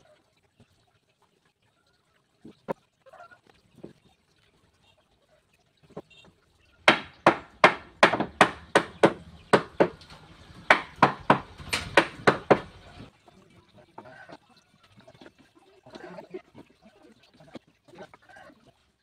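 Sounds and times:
hammer striking wood: 0:06.9 - 0:12.8.

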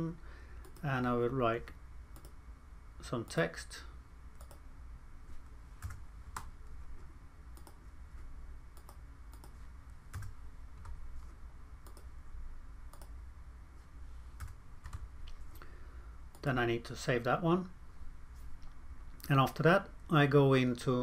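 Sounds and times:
faint low hum: 0:00.0 - 0:21.0
mouse clicks: 0:02.1 - 0:02.4, 0:04.4 - 0:04.6, 0:07.6 - 0:07.8, 0:08.8 - 0:09.6, 0:11.8 - 0:12.1, 0:12.9 - 0:13.2.

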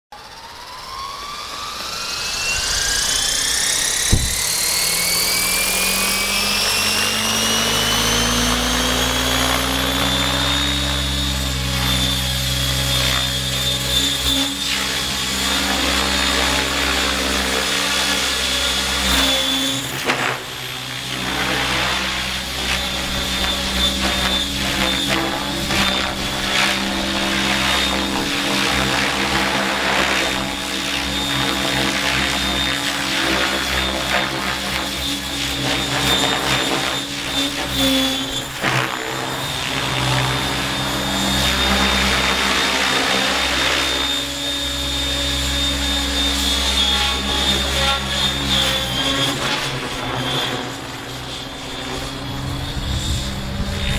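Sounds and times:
model helicopter whine: 0:00.1 - 0:53.9
rotor hum: 0:00.1 - 0:53.9
sharp knock: 0:04.1 - 0:04.6.

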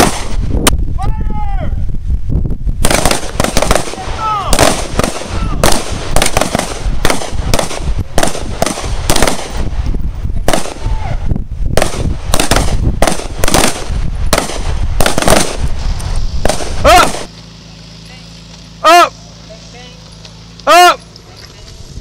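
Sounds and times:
pistol shots: 0:00.0 - 0:00.5, 0:02.8 - 0:09.6, 0:10.4 - 0:10.9, 0:11.8 - 0:15.7, 0:16.4 - 0:17.3.

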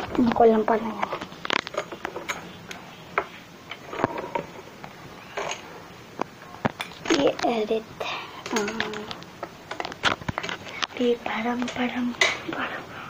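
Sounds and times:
hard parts clicking and tapping: 0:00.0 - 0:07.7, 0:08.4 - 0:12.6.

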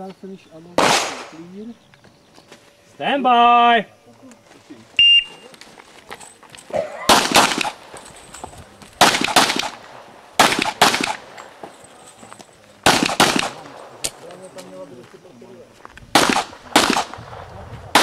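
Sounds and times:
pistol shots: 0:00.8 - 0:01.4, 0:07.0 - 0:07.9, 0:09.0 - 0:11.5, 0:12.8 - 0:14.2, 0:16.1 - 0:18.0.

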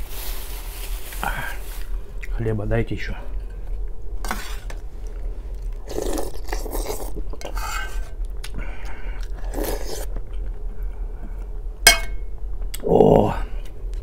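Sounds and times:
slurping soup off a spoon: 0:05.8 - 0:08.1, 0:08.8 - 0:10.1.

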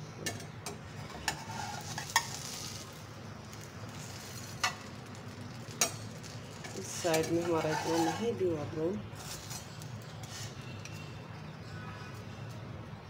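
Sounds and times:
toast sizzling in frying pan: 0:01.3 - 0:08.4.

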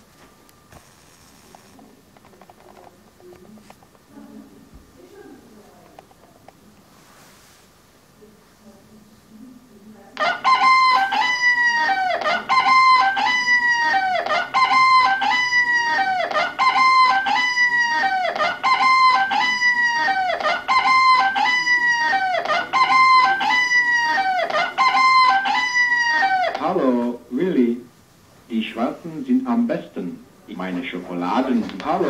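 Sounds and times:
recorded high-pitched call from speaker: 0:10.2 - 0:26.6.

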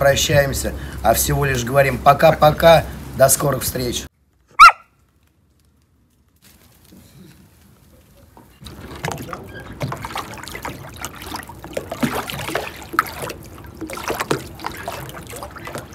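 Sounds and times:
small waves lapping: 0:07.3 - 0:15.9.

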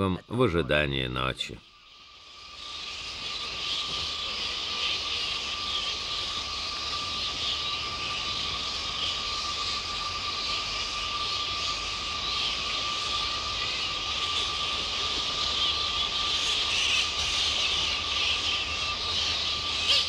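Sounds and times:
fruit bats chattering: 0:00.0 - 0:20.0.

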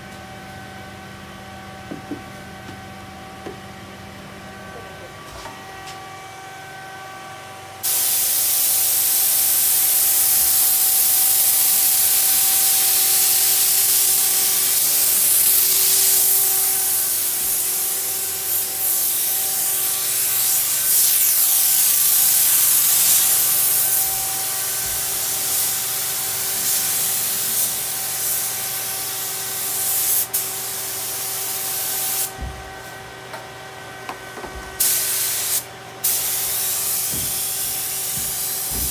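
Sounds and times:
air spray gun hissing: 0:07.8 - 0:32.4, 0:34.8 - 0:38.9.

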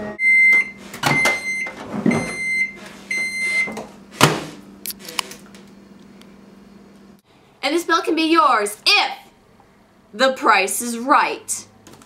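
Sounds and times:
microwave beeping: 0:00.0 - 0:03.9.

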